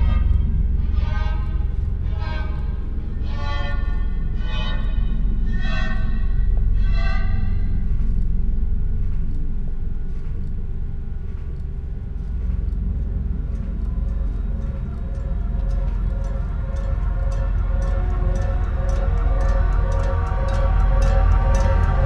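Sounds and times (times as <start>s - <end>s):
low drone: 0.0s - 22.0s
faint ticking: 9.0s - 22.0s.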